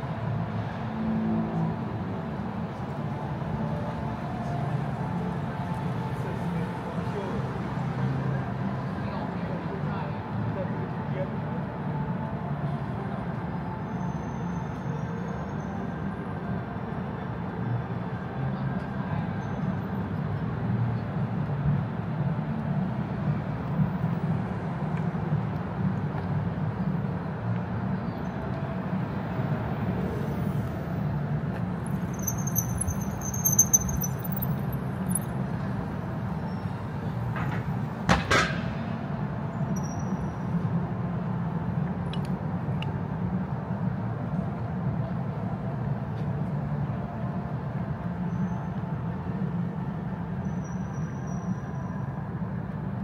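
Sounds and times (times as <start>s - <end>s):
brief high squeal: 50.4s - 52.1s.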